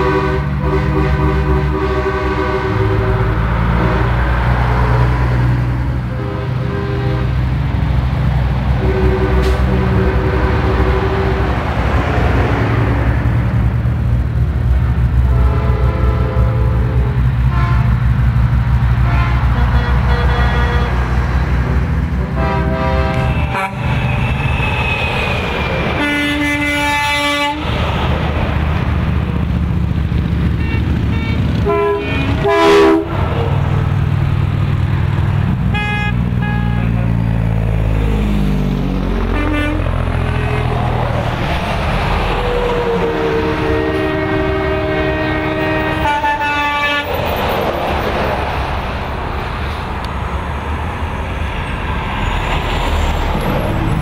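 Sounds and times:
truck air horn blasts: 0.0s - 4.3s, 6.1s - 7.4s, 8.8s - 11.7s, 15.2s - 18.0s, 19.0s - 25.4s, 26.0s - 27.7s, 30.4s - 33.5s, 35.7s - 37.2s, 39.2s - 41.1s, 42.8s - 47.2s
trucks passing: 0.0s - 54.0s.

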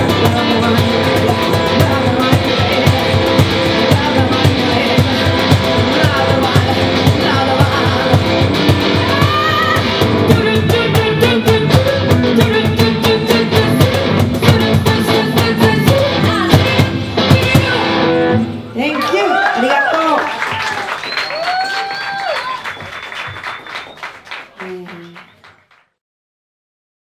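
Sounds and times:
woman singing into a microphone: 0.0s - 18.1s
strummed guitar: 0.0s - 18.7s.

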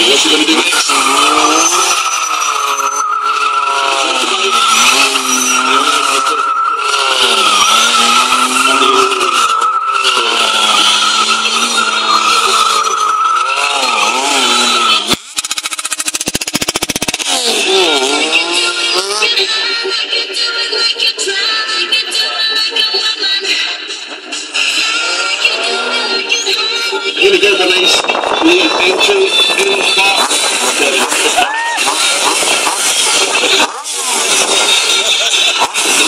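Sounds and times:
motorcycle engine revving: 0.0s - 20.4s, 24.3s - 36.0s
tyre squealing on tarmac: 0.2s - 19.4s, 29.8s - 36.0s
buzzing rattle: 15.2s - 17.4s.

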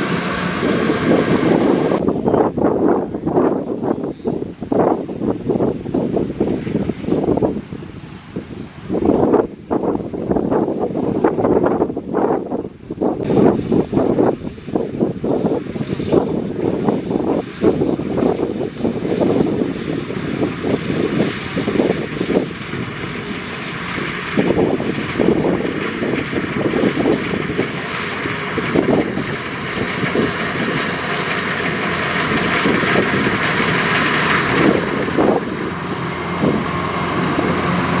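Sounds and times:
combine harvester running: 0.0s - 2.1s, 13.3s - 38.0s
wind buffeting microphone: 0.0s - 38.0s.

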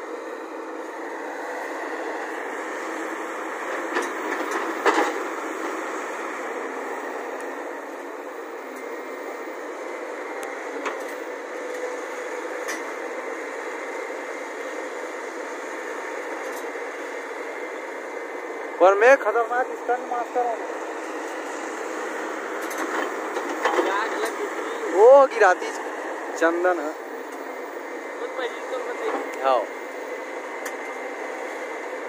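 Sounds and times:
excavator diesel engine running: 0.0s - 32.0s.

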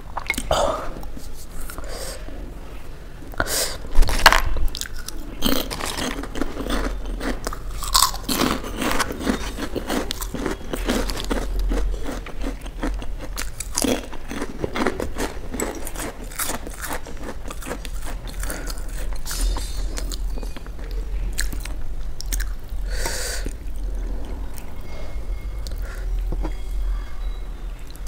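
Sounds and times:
crunching crispy chips: 4.1s - 20.4s.

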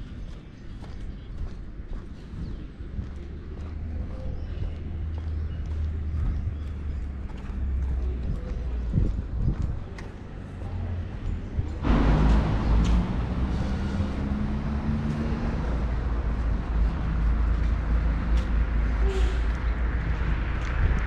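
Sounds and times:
street traffic noise: 0.0s - 21.0s
vehicle engine running close: 9.9s - 21.0s.

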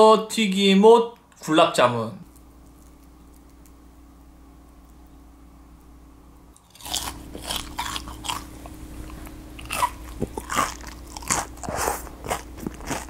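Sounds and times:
crunching fried food being chewed: 2.3s - 3.8s, 6.6s - 13.0s.

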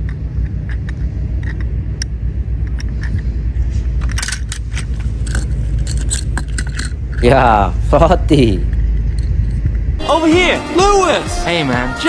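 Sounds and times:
steady low rumble: 0.0s - 11.9s
metal toy cars clinking: 4.0s - 9.7s.

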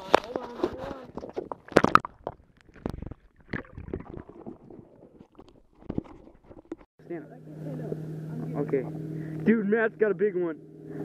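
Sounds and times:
dull knocks underwater: 0.1s - 6.9s
muffled water sloshing underwater: 0.6s - 6.9s.

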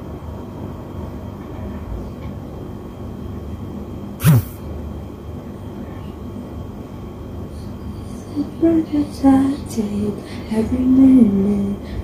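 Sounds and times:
faint hum: 3.1s - 12.0s
short loud falling sound: 4.2s - 4.6s.

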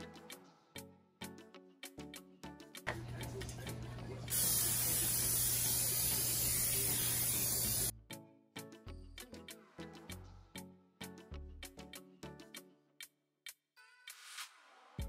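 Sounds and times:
aerosol spray hissing: 4.3s - 7.9s.

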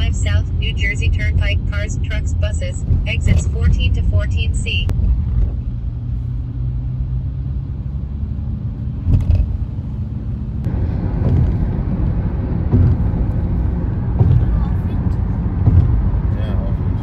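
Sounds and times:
car engine and road rumble: 0.0s - 17.0s
rough tyre noise: 4.9s - 17.0s
car bumps: 10.7s - 16.4s.

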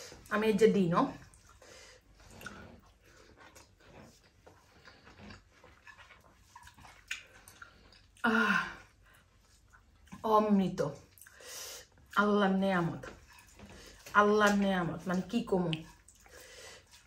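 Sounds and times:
fingers mixing food on a plate: 12.0s - 17.0s.

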